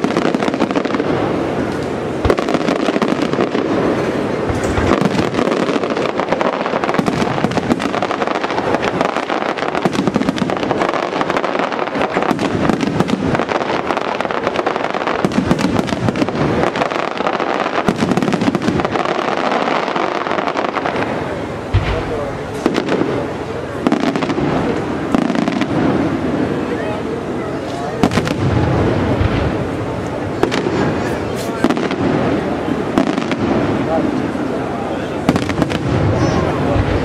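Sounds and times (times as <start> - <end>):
fireworks shell bursts and crackle: 4.4 - 6.0.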